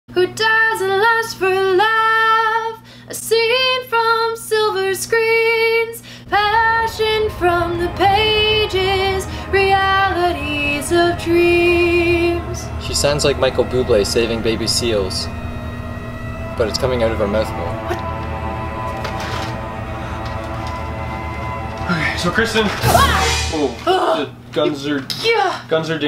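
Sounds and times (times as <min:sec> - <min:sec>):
woman singing long notes: 0:06.3 - 0:12.9.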